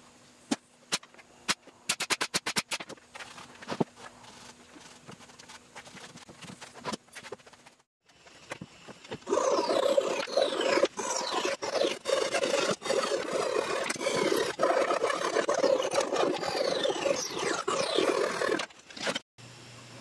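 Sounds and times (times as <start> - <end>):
knife scraping wood: 9.3 - 19.2.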